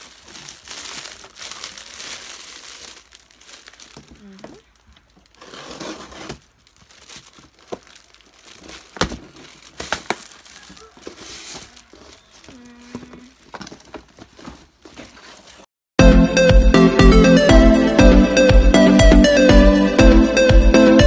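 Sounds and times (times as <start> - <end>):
plastic gift wrap crinkling: 0.0 - 15.7.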